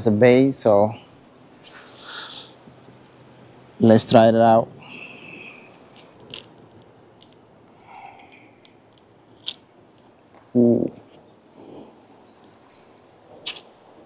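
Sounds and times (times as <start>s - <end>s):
scissors snipping: 13.4s - 13.7s.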